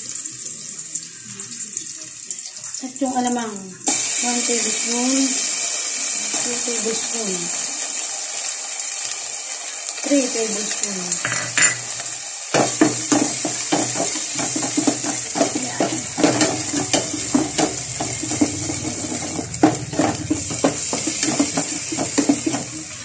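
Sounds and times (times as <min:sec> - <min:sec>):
food sizzling in oil: 0:00.0 - 0:23.0
spoon scraping and clinking pot: 0:11.2 - 0:23.0.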